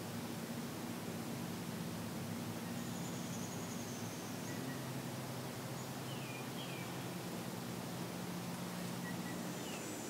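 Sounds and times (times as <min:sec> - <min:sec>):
outdoor hiss: 0:00.0 - 0:10.0
bird chirps: 0:02.7 - 0:04.9, 0:09.0 - 0:10.0.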